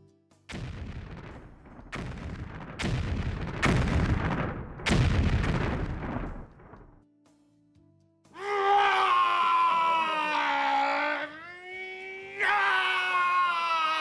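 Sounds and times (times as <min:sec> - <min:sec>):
heavy rumbling booms: 0:00.6 - 0:07.0.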